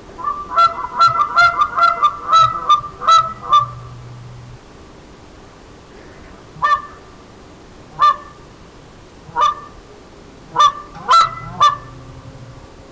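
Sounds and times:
goose call honks: 0.2 - 4.1, 6.6 - 7.0, 7.9 - 8.4, 9.3 - 9.8, 10.5 - 12.8.

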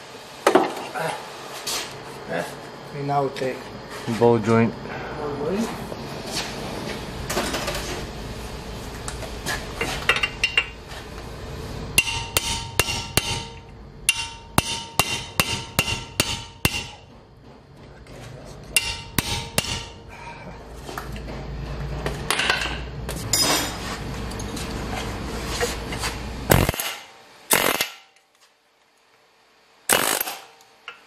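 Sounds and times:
hammer striking steel: 12.0 - 17.2, 18.8 - 20.1.

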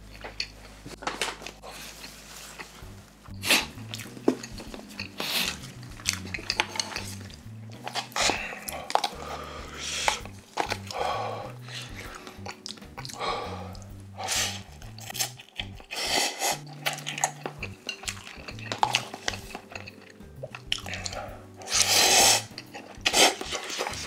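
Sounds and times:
chewing: 0.0 - 24.0
noodles being slurped: 0.0 - 24.0
soft background music: 0.0 - 24.0
chopsticks clicking against cup: 3.9 - 9.4, 14.8 - 24.0.

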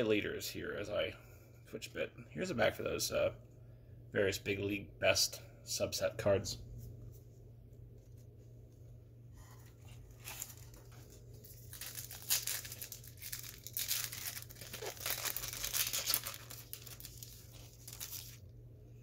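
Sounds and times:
foil wrapper crinkling and tearing: 10.0 - 18.5.

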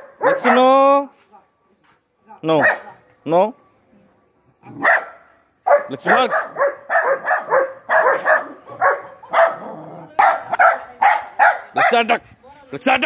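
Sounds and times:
dog yapping: 4.8 - 12.0.

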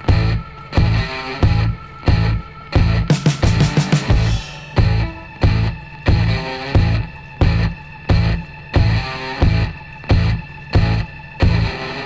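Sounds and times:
rock music with guitar: 0.0 - 12.0
heavy drum beat hits: 3.1 - 6.3.

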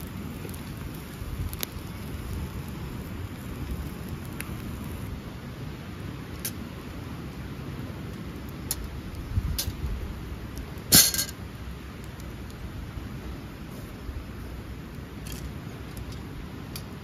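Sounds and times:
low steady rumble: 0.0 - 17.0
wood fire crackling: 0.0 - 17.0
metal grill grate clatter: 10.9 - 11.4.

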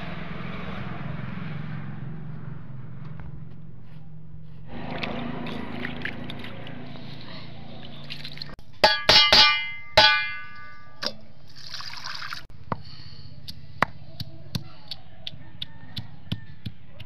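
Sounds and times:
steel utensils clanging: 8.8 - 11.2
water poured onto stone: 11.6 - 12.5.

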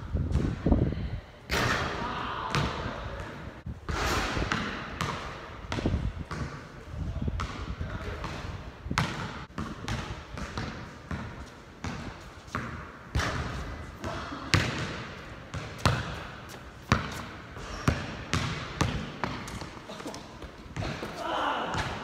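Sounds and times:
basketball bouncing on court: 2.5 - 6.7, 7.3 - 19.8, 20.4 - 22.0.

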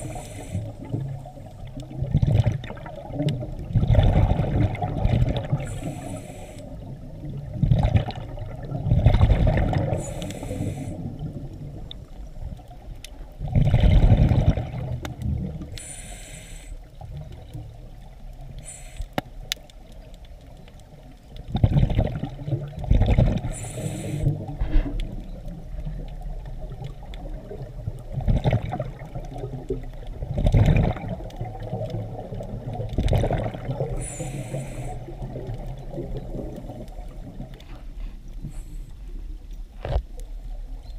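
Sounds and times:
regulator breathing hiss: 0.0 - 0.9, 5.6 - 6.9, 9.9 - 11.2, 15.7 - 16.9, 18.6 - 19.2, 23.5 - 24.5, 33.9 - 35.1
exhaled bubbles gushing: 0.0 - 6.0, 6.8 - 15.8, 21.3 - 37.7.

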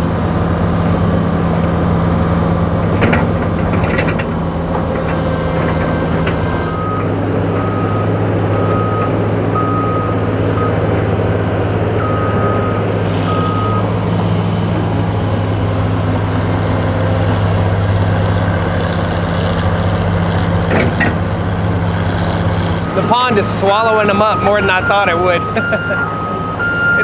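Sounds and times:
excavator diesel engine running: 0.0 - 27.0
backup alarm beeping: 12.0 - 13.9, 23.9 - 27.0.

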